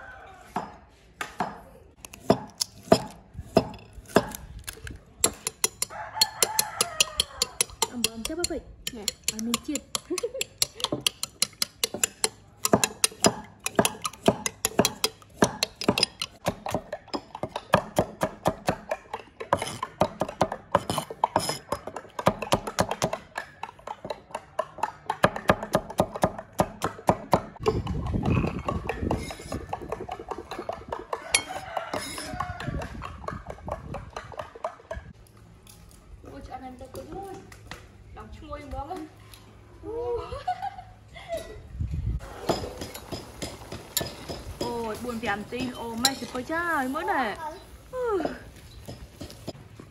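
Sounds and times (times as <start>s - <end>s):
cleaver chopping on wooden block: 0.6s - 4.4s, 5.2s - 34.8s
spoon beating eggs in ceramic bowl: 5.2s - 17.8s.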